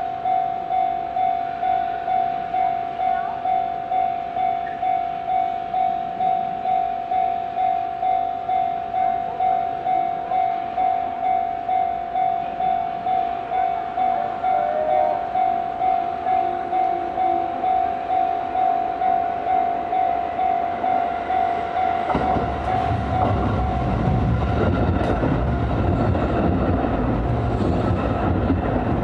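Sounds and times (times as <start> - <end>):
level crossing bell ringing: 0.2 - 22.1.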